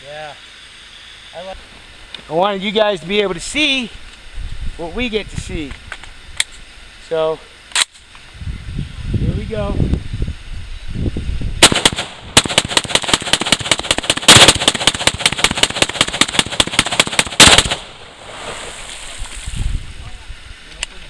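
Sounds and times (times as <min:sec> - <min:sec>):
rifle firing rapidly: 0:11.6 - 0:18.0.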